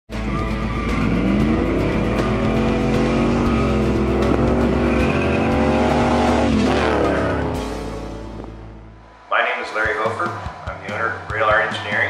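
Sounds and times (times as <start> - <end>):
truck engine accelerating hard: 0.2 - 9.0.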